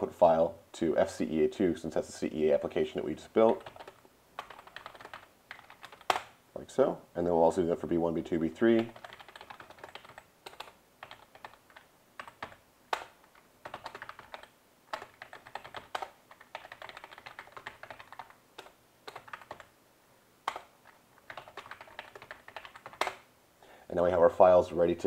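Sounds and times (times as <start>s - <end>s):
typing on a computer keyboard: 3.4s - 6.3s, 8.8s - 19.7s, 20.5s - 23.2s.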